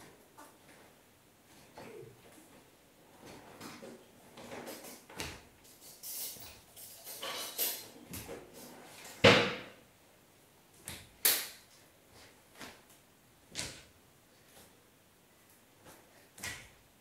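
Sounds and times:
bare feet thudding on tiled floor: 15.8s - 16.8s.

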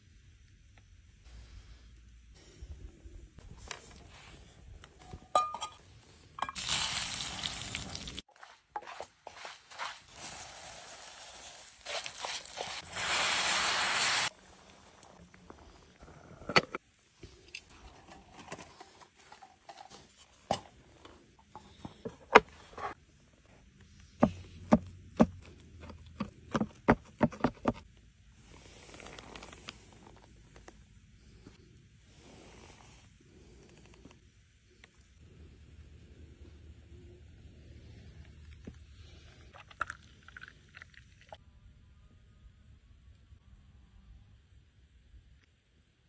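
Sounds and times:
hot pan sizzling: 10.1s - 14.4s.

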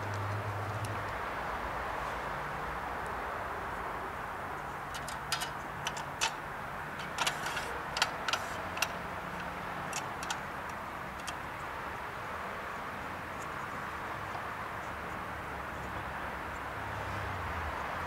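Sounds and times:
clicks and knocks of handled chainsaw: 4.9s - 6.4s, 7.0s - 11.4s.

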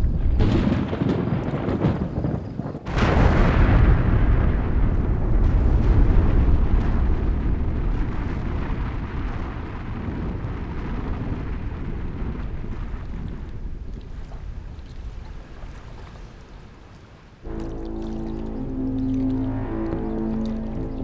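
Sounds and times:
explosive blast: 0.0s - 2.1s, 2.9s - 12.7s
deep rumble of collapsing chimneys: 2.8s - 13.9s.

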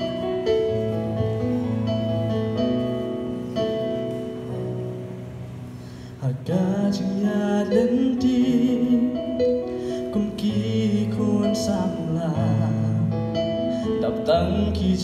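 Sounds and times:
electronic keyboard chords: 0.0s - 15.0s
man singing: 6.2s - 15.0s.

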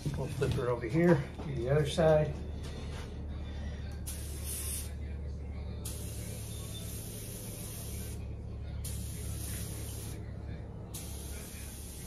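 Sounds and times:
paint spray gun hissing: 4.1s - 4.9s, 5.9s - 8.2s, 8.8s - 10.2s, 11.0s - 12.0s.

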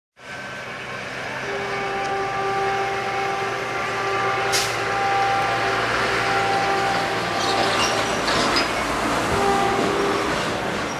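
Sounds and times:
train running noise: 0.2s - 10.9s.

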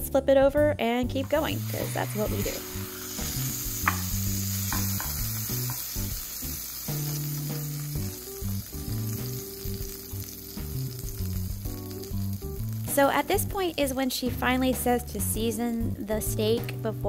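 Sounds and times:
background music: 0.0s - 17.0s
steak sizzling in skillet: 1.2s - 14.5s.

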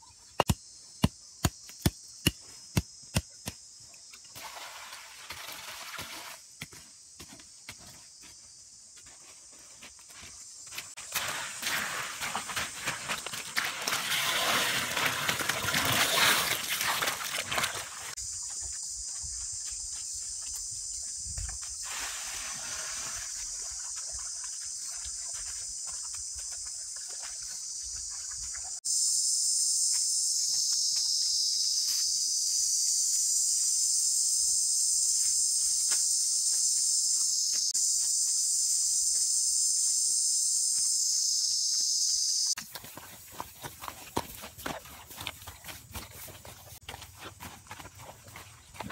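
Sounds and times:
high-pitched insect chorus: 17.0s - 43.4s.

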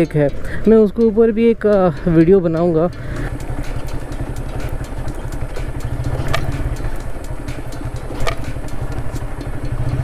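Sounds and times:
motorcycle engine running: 0.0s - 10.0s
sharp clicks: 3.5s - 10.0s.

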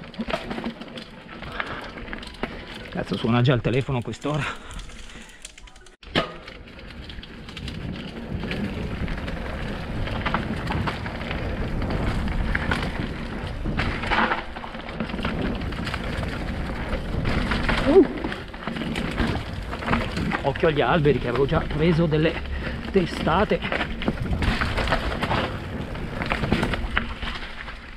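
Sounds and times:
bike tyres rumbling on trail: 0.0s - 5.8s, 6.4s - 27.9s
bike knocks and clatters: 6.0s - 27.9s.

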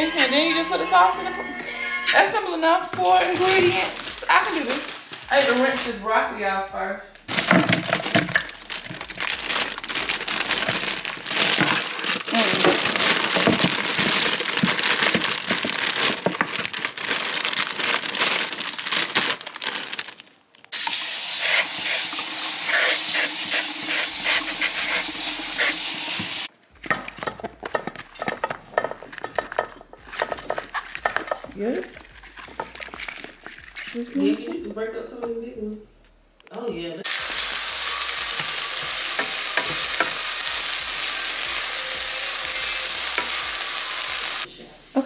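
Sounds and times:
florets rattling in colander: 3.0s - 6.0s, 7.3s - 20.2s, 26.4s - 34.4s, 37.1s - 44.5s
running tap water: 20.7s - 26.5s, 37.0s - 45.0s.

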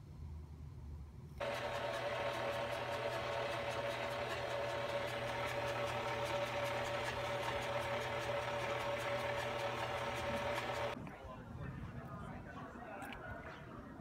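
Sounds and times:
stand mixer motor whine: 1.4s - 11.0s.

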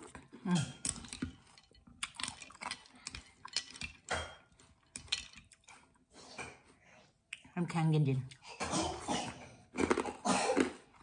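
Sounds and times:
chewing: 0.0s - 6.7s, 9.2s - 11.0s.

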